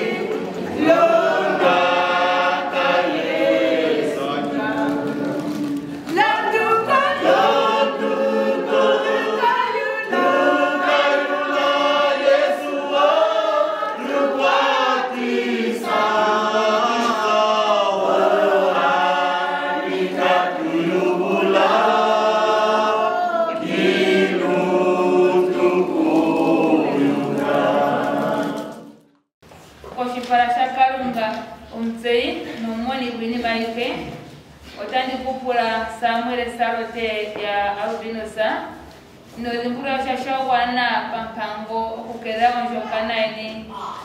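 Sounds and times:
choir singing: 0.0s - 29.1s.

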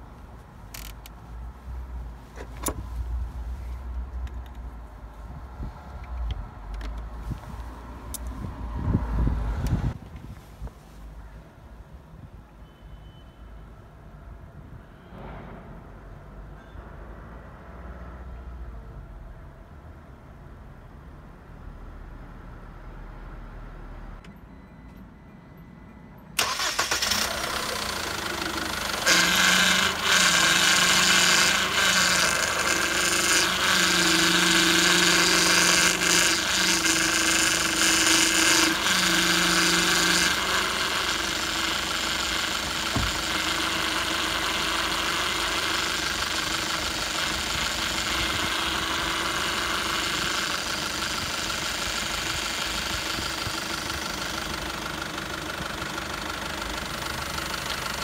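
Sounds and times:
car engine idling: 26.4s - 58.0s
power steering pump running: 26.4s - 58.0s.

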